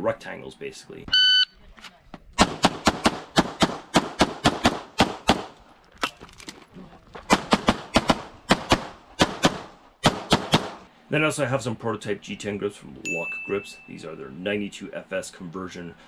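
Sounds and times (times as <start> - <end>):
pistol firing rapidly: 2.4 - 5.6, 7.3 - 10.8.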